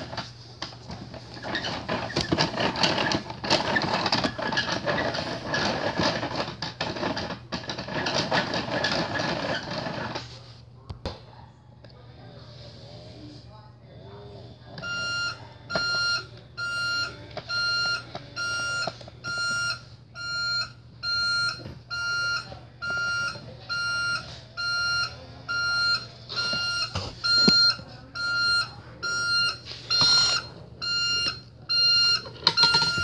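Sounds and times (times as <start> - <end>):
toy backup alarm beeping: 14.8 - 33.0.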